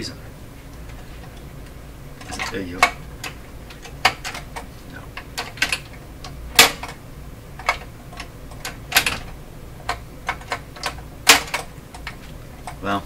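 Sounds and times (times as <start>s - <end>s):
small parts and tool clicking: 0.7s - 7.0s, 7.6s - 12.8s.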